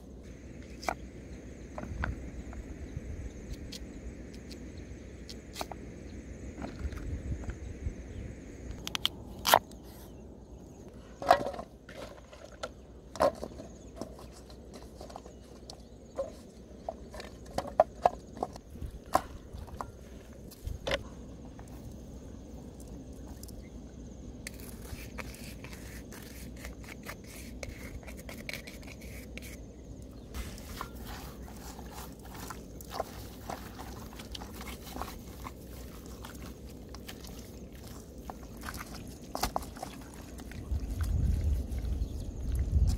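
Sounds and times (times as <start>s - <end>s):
cleaver cutting vegetable: 24.5s - 29.6s
hands squelching raw meat: 30.4s - 42.7s.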